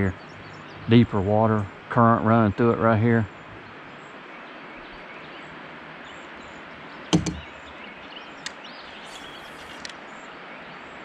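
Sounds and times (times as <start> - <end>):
steady outdoor hiss: 0.0 - 11.0
faint bird chirps: 3.3 - 10.9
gear knocking on plastic hull: 7.2 - 7.5.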